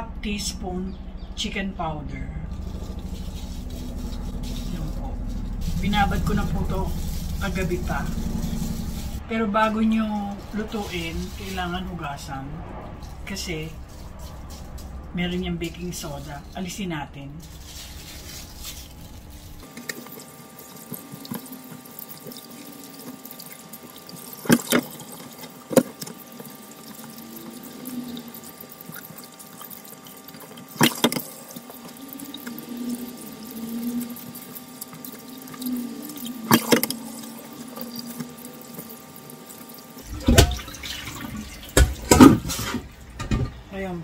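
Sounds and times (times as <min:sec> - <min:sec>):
colander knocking against sink: 0:40.1 - 0:40.8
tap running into steel sink: 0:40.1 - 0:43.5.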